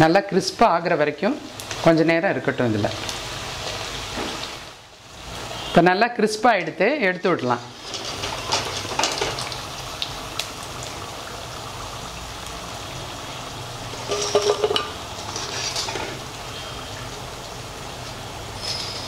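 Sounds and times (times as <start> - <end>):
fritters sizzling in hot oil: 0.0 - 19.0
wire strainer scraping metal pan: 7.8 - 9.4, 14.0 - 16.2.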